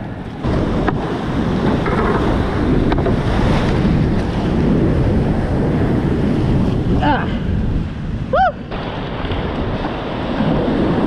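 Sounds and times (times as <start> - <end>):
water splashing over boat and paddle: 0.0 - 11.0.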